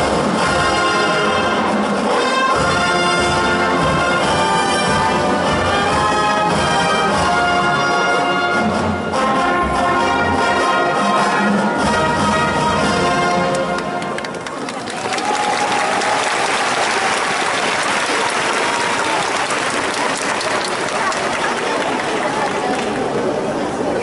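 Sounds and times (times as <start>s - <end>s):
marching band brass chords: 0.0s - 14.4s.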